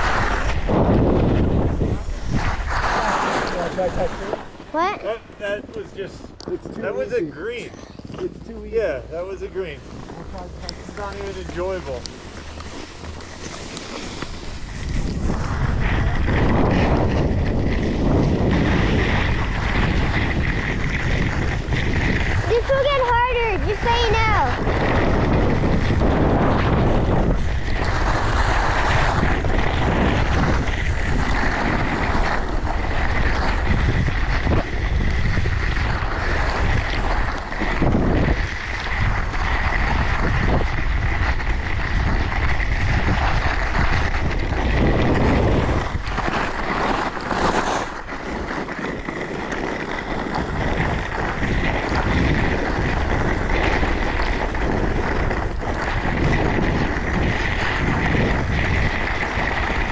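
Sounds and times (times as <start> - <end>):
skis hissing over snow: 0.0 - 59.9
wind buffeting microphone: 0.0 - 59.9.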